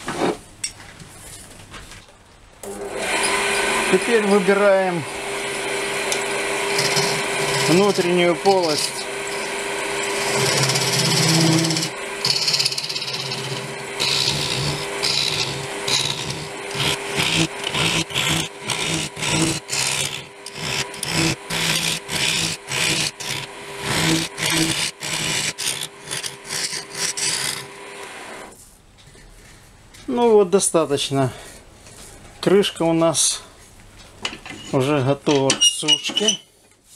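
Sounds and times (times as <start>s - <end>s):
wood lathe humming: 2.6s - 28.6s
gouge scraping wood: 5.8s - 27.8s.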